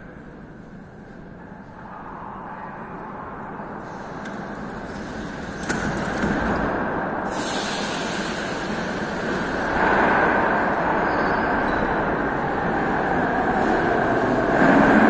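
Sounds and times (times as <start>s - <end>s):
train doors shutting: 3.8s - 15.0s
train pulling out: 7.2s - 15.0s
air hiss: 7.3s - 10.5s.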